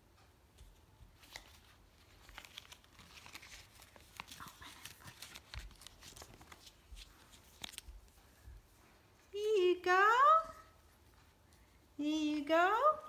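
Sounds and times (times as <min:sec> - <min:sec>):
paper envelope crinkling: 0:01.2 - 0:08.2.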